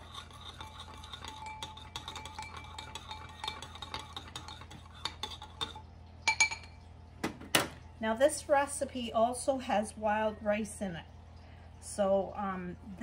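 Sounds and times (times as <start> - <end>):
metal spoon clinking in bowl: 0.0 - 6.8.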